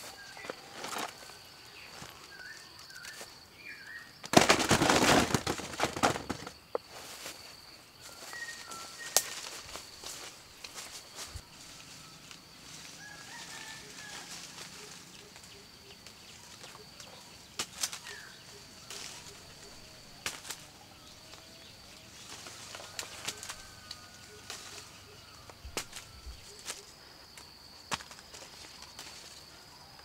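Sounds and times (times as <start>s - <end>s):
high insect drone: 0.0s - 30.0s
leaves and branches rustling: 0.0s - 30.0s.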